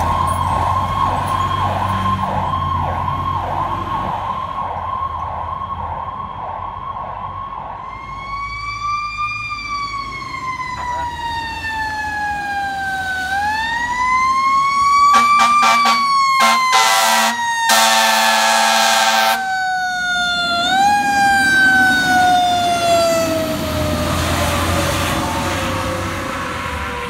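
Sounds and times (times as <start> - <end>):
fire truck siren wailing: 0.0 - 27.0
fire truck horn blasts: 15.1 - 19.5.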